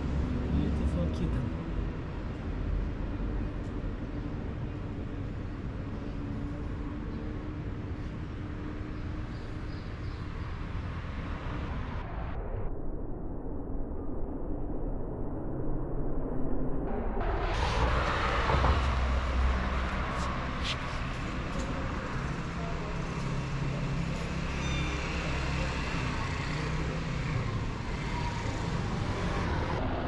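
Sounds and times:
traffic road noise rumble: 0.0s - 12.6s, 16.9s - 30.0s
vehicle passing: 17.2s - 30.0s.

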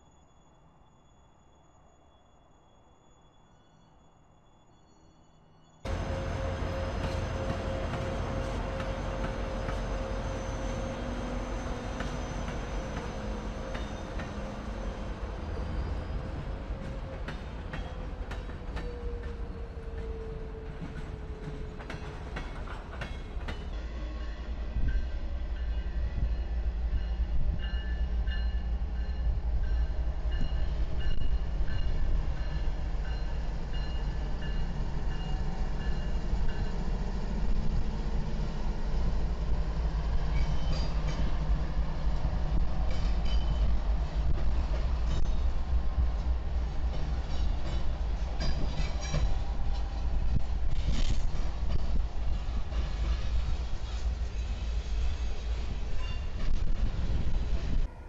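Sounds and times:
freight train passing: 1.4s - 58.0s
train wheel clicks: 16.8s - 23.7s.

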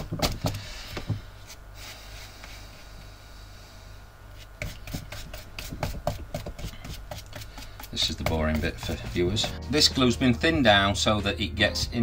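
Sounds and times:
glue brush rubbing: 4.4s - 9.6s
brush dabbing: 4.4s - 10.5s.

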